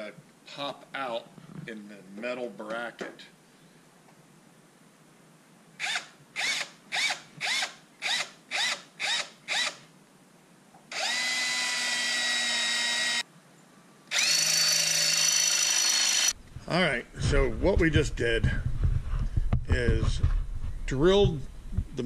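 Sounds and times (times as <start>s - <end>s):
cordless drill boring: 5.8s - 9.8s, 10.9s - 13.2s, 14.1s - 16.4s.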